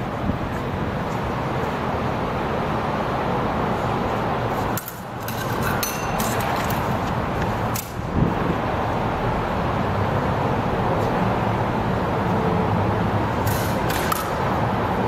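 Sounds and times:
rushing background noise: 0.0 - 15.0
metal blades clashing: 4.8 - 6.4.

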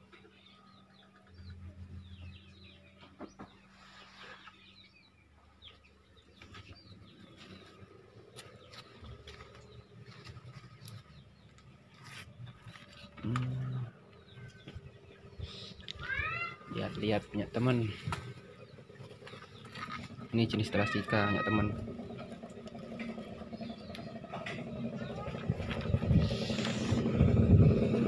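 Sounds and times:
small birds chirping: 0.0 - 28.0
low-pitched animal call: 13.2 - 16.9, 17.9 - 28.0.

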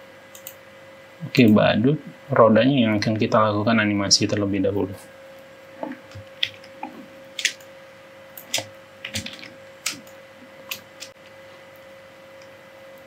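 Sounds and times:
faint steady hum: 0.0 - 13.0
keyboard and mouse clicking: 0.3 - 0.6, 6.1 - 7.7, 8.4 - 11.3.

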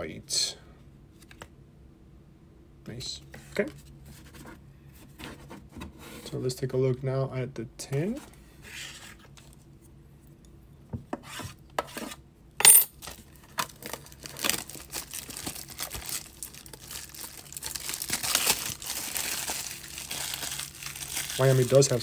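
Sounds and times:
sharp metallic clink: 12.6 - 13.0
plastic wrap crinkling: 13.0 - 22.0.

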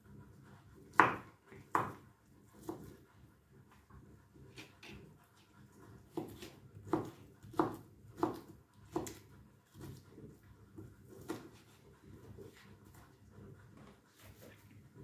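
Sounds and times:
knife chopping on cutting board: 0.9 - 2.9, 6.1 - 10.0, 11.1 - 11.6.

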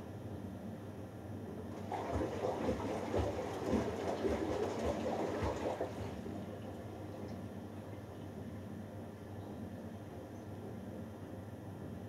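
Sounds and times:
water and laundry sloshing: 1.7 - 7.4.

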